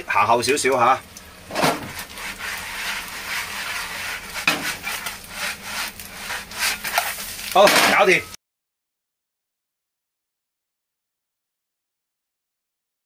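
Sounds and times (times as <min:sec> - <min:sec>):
oil sizzling: 0:00.0 - 0:08.4
scrapes in a wok: 0:01.5 - 0:08.2.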